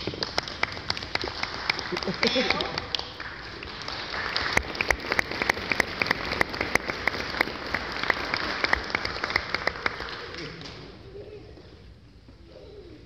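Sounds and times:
audience applauding: 0:00.0 - 0:10.9
sharp nearby claps: 0:00.0 - 0:11.0.

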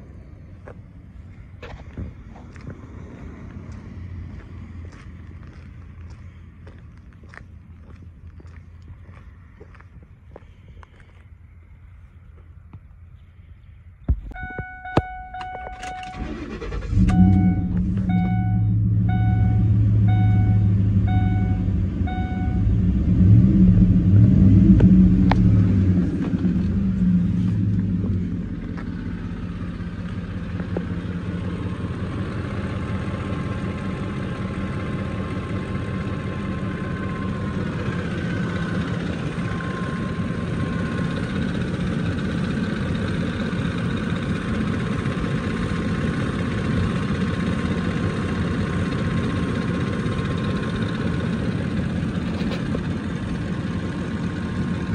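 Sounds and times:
truck engine idling: 0:00.0 - 0:54.9
dashboard chime beeping: 0:14.2 - 0:16.4, 0:17.0 - 0:22.7.

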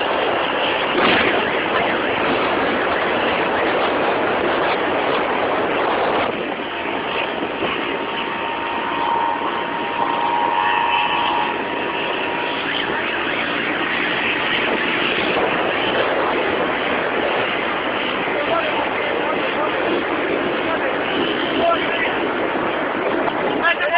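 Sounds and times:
faint steady whine: 0:00.0 - 0:23.9
road and air noise: 0:00.0 - 0:23.9.

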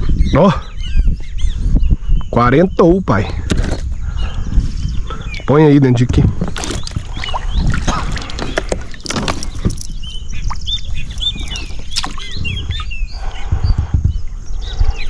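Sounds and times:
bird chirping: 0:00.0 - 0:15.0
knocks and rustling in boat: 0:05.9 - 0:12.8.

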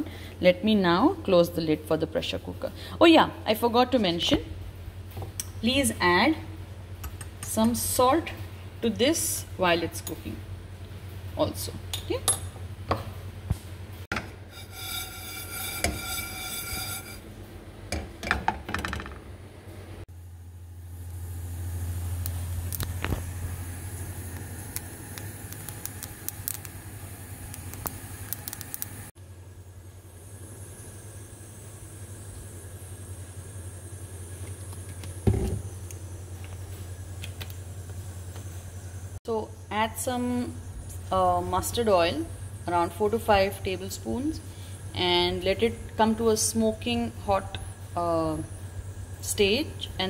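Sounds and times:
steady low hum: 0:00.0 - 0:50.0
pressure cooker squealing: 0:14.5 - 0:17.2.

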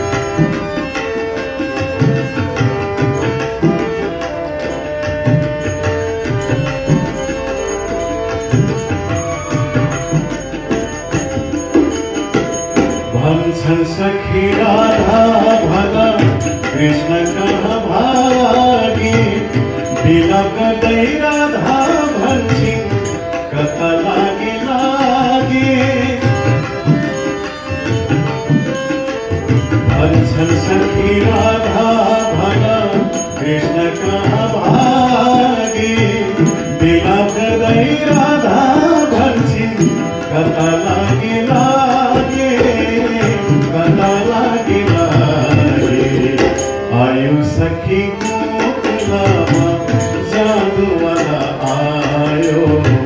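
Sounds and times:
harmonium: 0:00.0 - 0:53.0
tabla: 0:00.0 - 0:53.0
man singing: 0:12.3 - 0:53.0.

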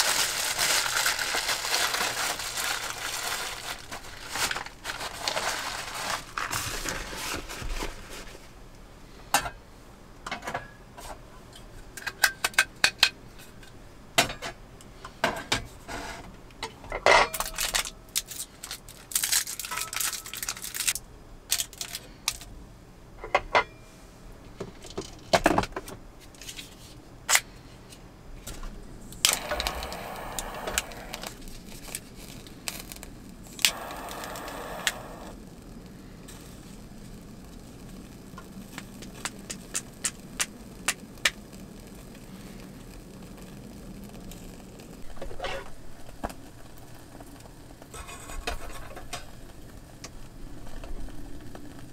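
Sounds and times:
gas lighter hissing: 0:29.2 - 0:31.5, 0:32.7 - 0:35.4.

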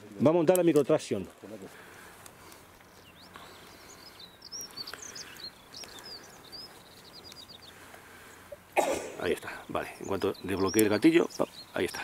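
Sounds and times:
small bird chirping: 0:02.5 - 0:12.0
bird trill: 0:02.8 - 0:08.6, 0:09.2 - 0:12.0.

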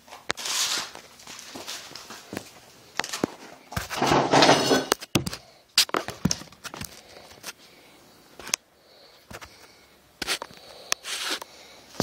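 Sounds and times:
rustling scrape: 0:00.4 - 0:02.2, 0:03.8 - 0:05.0, 0:11.0 - 0:11.4.

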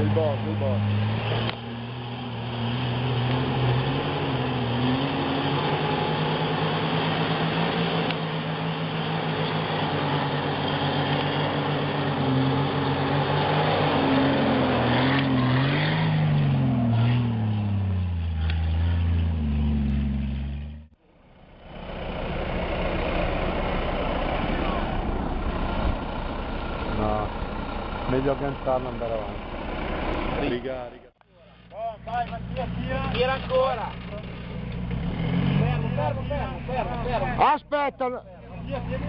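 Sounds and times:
engine revving: 0:00.0 - 0:21.0, 0:32.1 - 0:38.0
engine working under load: 0:00.0 - 0:31.1.

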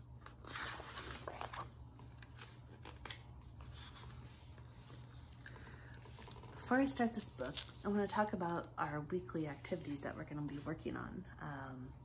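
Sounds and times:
book pages turning: 0:00.1 - 0:05.3, 0:06.0 - 0:08.2.

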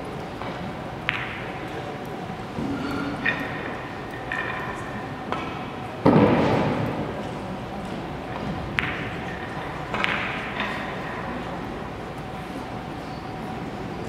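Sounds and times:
heavy echoing thump: 0:06.0 - 0:07.2.

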